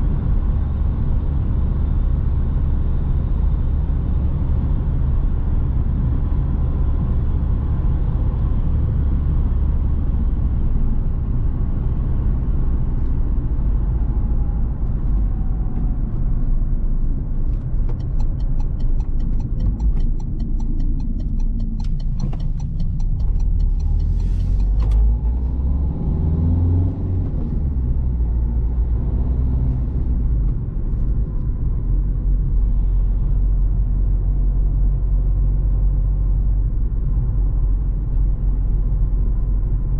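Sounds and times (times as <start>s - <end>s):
car engine rumbling: 0.0s - 39.9s
road noise: 0.0s - 39.9s
quick even ticking: 17.9s - 25.0s.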